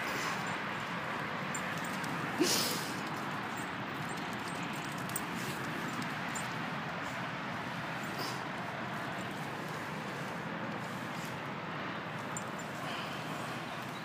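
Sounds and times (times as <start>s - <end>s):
outdoor background noise: 0.0s - 14.0s.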